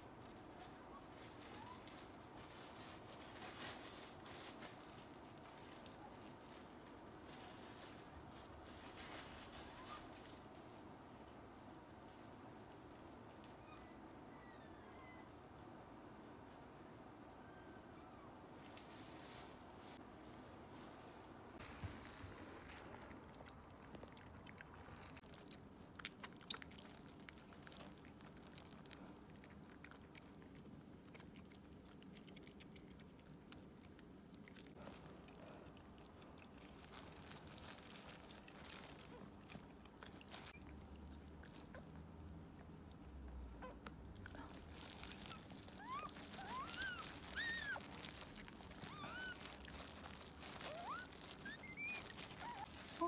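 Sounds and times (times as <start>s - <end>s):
rustling: 0.0s - 17.8s, 18.4s - 53.0s
puppy squeaking: 45.1s - 53.0s.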